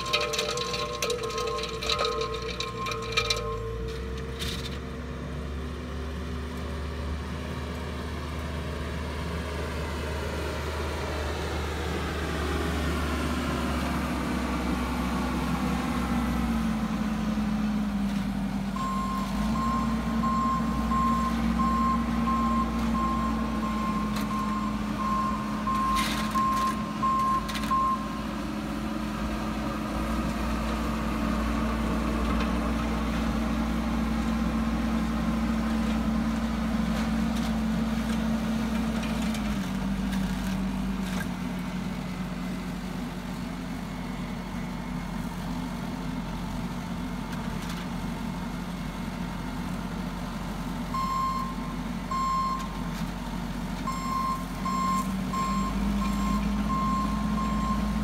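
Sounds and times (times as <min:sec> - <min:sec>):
diesel engine running: 0:00.0 - 0:58.0.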